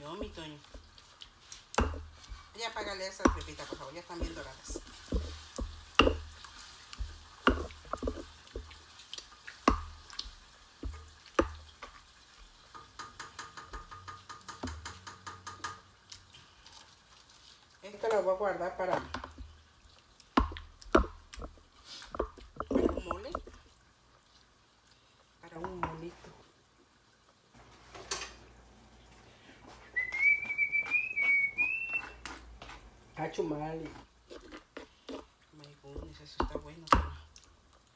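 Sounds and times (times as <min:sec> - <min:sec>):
wooden spoon stirring in stone bowl: 0:00.0 - 0:13.2, 0:20.2 - 0:23.8, 0:33.8 - 0:37.4
rapid pestle taps: 0:01.7 - 0:02.1, 0:03.2 - 0:06.3, 0:07.0 - 0:08.8, 0:09.7 - 0:11.6
stone pestle knocking on stone: 0:04.2 - 0:06.3, 0:07.0 - 0:08.7
person whistling: 0:29.9 - 0:32.2.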